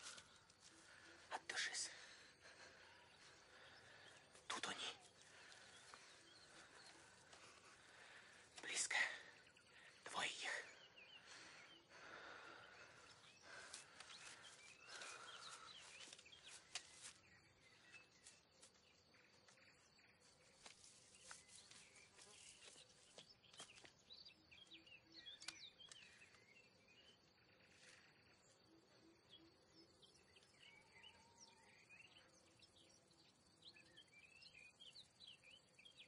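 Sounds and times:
undergrowth rustling: 0:00.0 - 0:01.3, 0:11.3 - 0:24.1
small birds chirping: 0:00.0 - 0:36.0.

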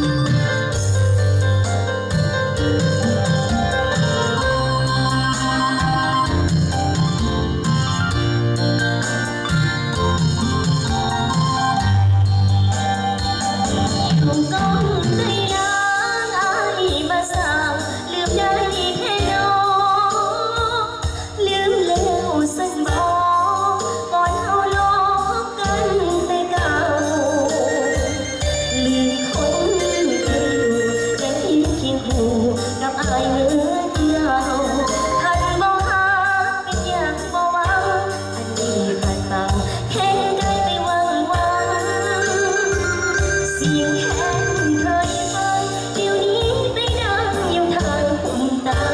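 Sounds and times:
electronic keyboard music: 0:00.0 - 0:17.2, 0:40.3 - 0:46.5
amplified backing music with beat: 0:00.0 - 0:48.9
woman singing into microphone: 0:03.4 - 0:07.2, 0:12.7 - 0:48.9.

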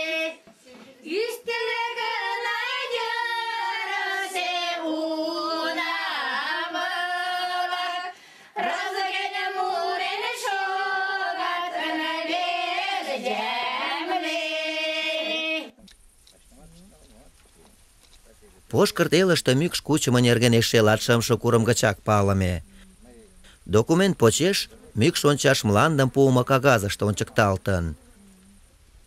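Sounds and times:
women singing unaccompanied: 0:00.0 - 0:15.8
breath between phrases: 0:08.1 - 0:08.6, 0:22.7 - 0:23.7.

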